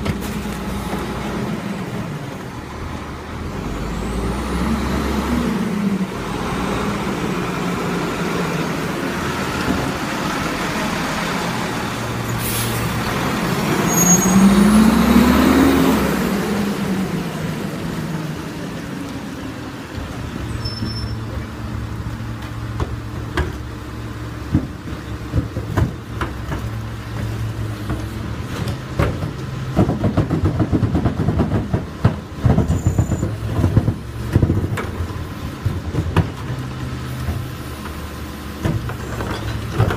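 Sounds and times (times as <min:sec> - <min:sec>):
garbage truck diesel engine: 0:00.0 - 0:39.9
plastic carts knocking and clattering: 0:24.5 - 0:36.8.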